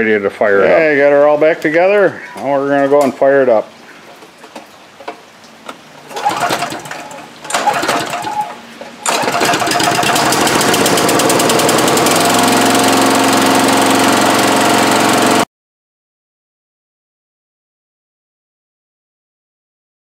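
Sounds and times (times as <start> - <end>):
lawn mower engine running: 6.0 - 15.5
recoil starter pulls: 6.1 - 15.4.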